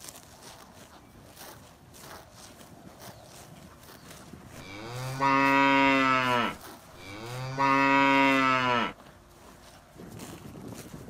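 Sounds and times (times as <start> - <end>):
cow mooing: 4.6 - 9.0.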